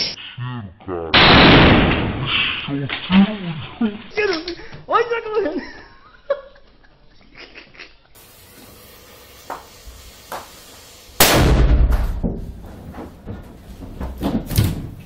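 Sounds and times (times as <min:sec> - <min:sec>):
firecracker bang: 0:01.2 - 0:02.6, 0:09.5 - 0:12.8.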